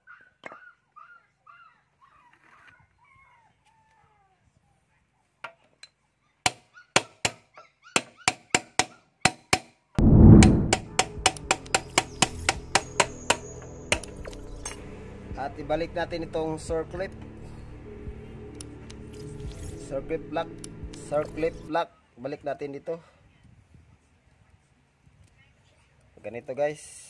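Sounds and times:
background music: 10.0 - 21.7.

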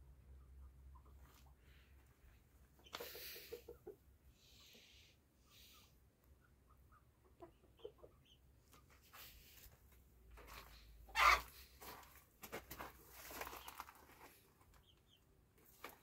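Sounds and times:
chickens clucking faintly: 0.0 - 11.9.

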